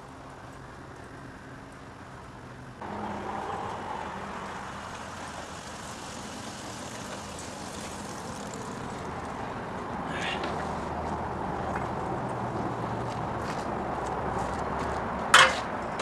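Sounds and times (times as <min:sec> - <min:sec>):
small motorcycle engine running: 0:05.4 - 0:09.4.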